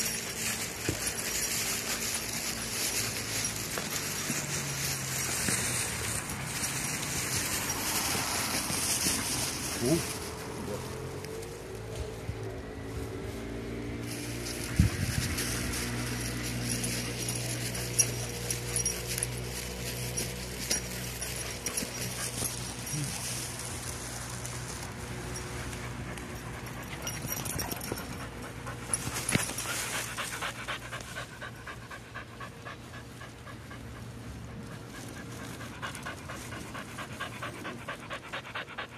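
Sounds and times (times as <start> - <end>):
dog panting: 14.6 - 23.4, 25.4 - 38.9.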